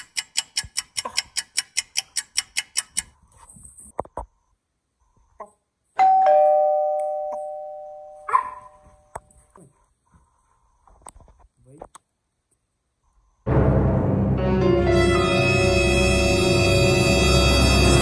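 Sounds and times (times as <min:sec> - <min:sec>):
rapid even ticking: 0:00.0 - 0:03.2
two-note ding-dong chime: 0:06.0 - 0:08.8.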